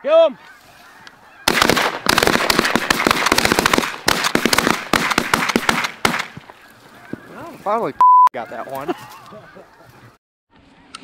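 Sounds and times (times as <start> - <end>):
shotgun fire: 1.5 - 6.4.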